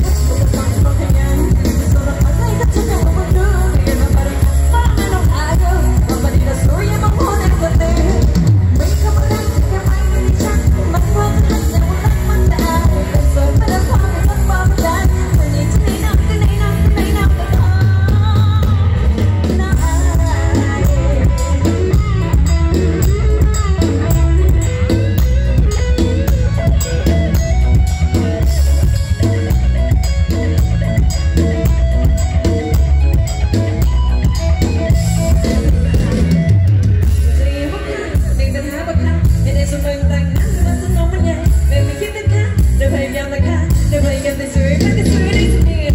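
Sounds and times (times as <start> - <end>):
drum kit beat: 0.0 - 38.6
wavering lead melody: 0.0 - 39.0
band music through loudspeakers: 0.0 - 45.9
bass: 0.0 - 45.9.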